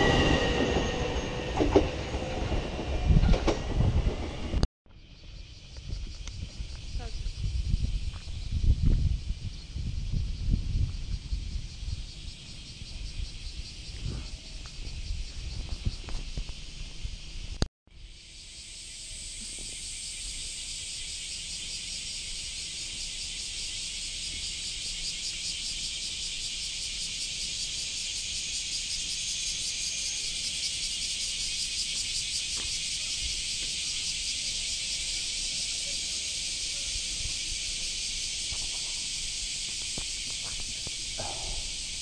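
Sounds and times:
pulsing insect chorus: 4.9 - 42.0.

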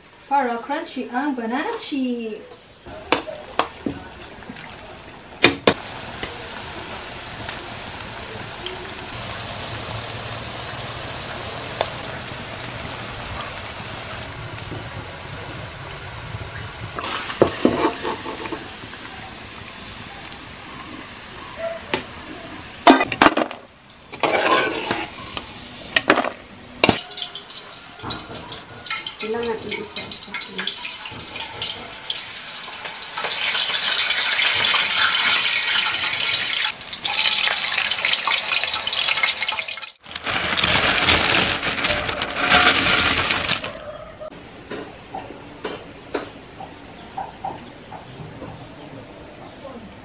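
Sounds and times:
bananas sizzling in hot oil: 2.9 - 43.8
metal spatula scraping a wok: 17.1 - 18.7, 24.1 - 25.4.

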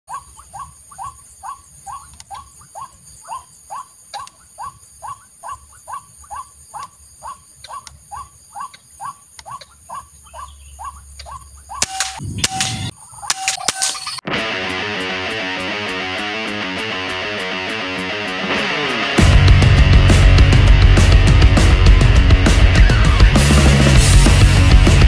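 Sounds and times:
waterhen calling: 0.1 - 12.2.

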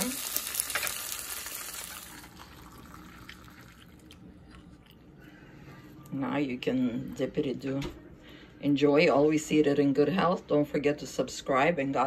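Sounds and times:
butter sizzling in a frying pan: 0.0 - 3.0.

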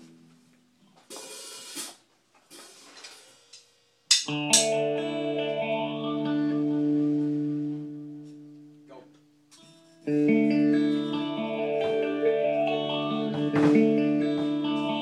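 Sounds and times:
guitar chord ringing: 4.1 - 15.0.

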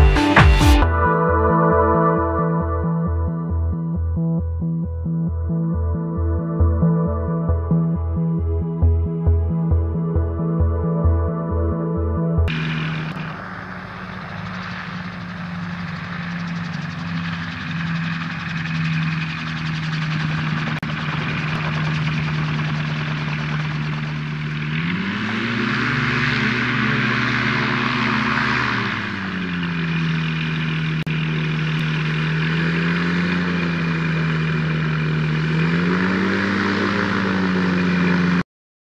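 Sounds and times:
gyroplane engine and propeller: 12.4 - 38.4.

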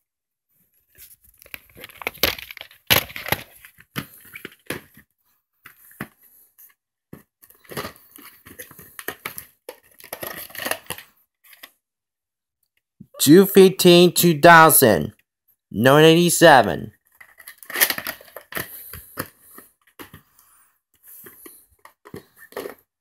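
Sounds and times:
plastic cases crinkling and clattering: 0.9 - 6.3, 7.2 - 11.7, 17.0 - 20.4, 21.0 - 23.0.

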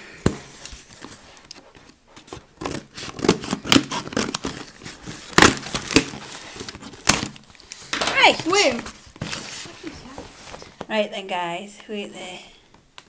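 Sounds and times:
cardboard box tearing: 2.6 - 6.2.

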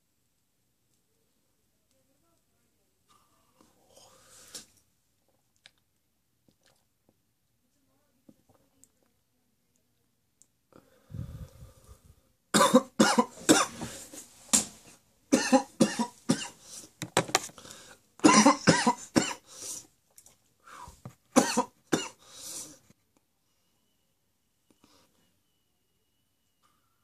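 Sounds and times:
man coughing hard: 12.6 - 13.8, 15.3 - 16.6, 18.2 - 19.4, 21.4 - 22.2.

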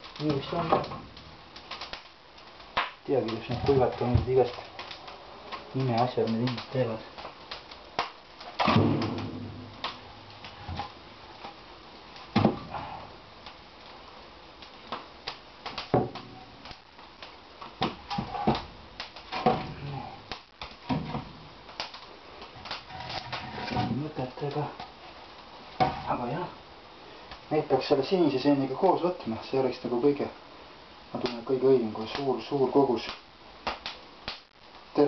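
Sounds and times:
logs knocking and scraping: 0.0 - 11.6, 12.2 - 14.0, 14.6 - 26.4.

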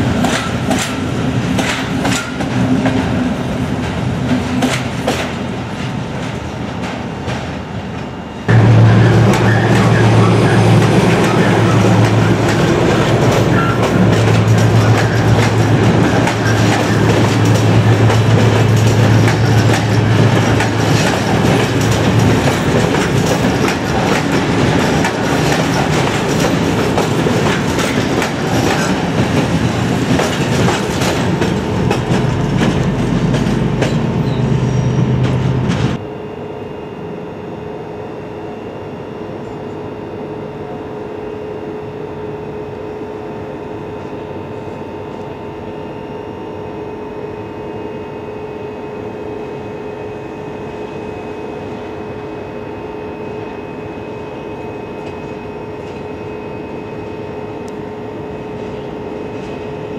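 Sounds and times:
train wheels clattering over rail joints: 0.1 - 3.2, 3.8 - 7.6, 10.8 - 34.4.

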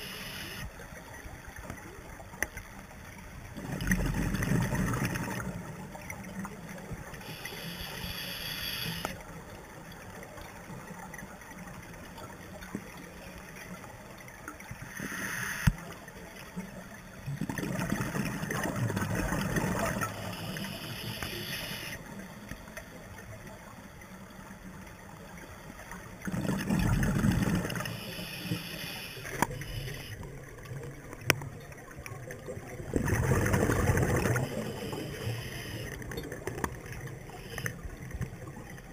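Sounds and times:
gurgling bubbles exhaled underwater: 3.5 - 7.2, 13.8 - 20.3, 25.8 - 28.1, 29.3 - 38.9
hissing regulator inhalation: 7.3 - 9.1, 20.2 - 22.0, 27.9 - 30.2.

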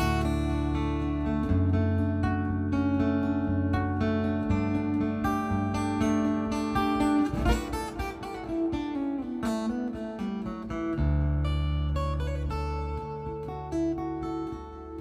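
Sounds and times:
fingerpicked acoustic guitar: 0.0 - 15.0.

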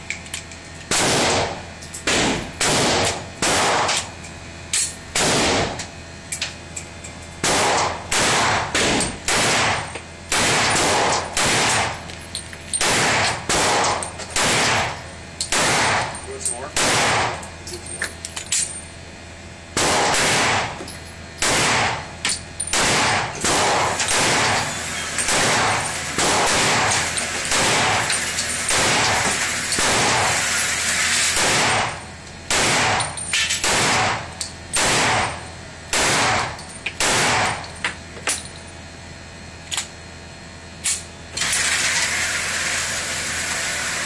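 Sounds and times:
pistol shots echoing: 0.9 - 1.5, 2.1 - 4.0, 7.4 - 11.9, 12.8 - 14.9, 15.5 - 16.0, 16.7 - 17.4, 19.8 - 20.7, 21.4 - 22.0, 22.7 - 24.6, 25.3 - 28.1, 32.5 - 33.0, 33.6 - 37.6.

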